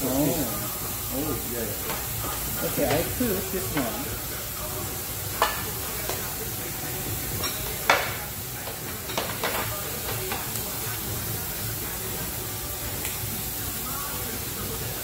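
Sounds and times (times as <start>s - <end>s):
meat sizzling on grill: 0.0s - 15.0s
metal tongs clicking on grill: 13.0s - 13.2s.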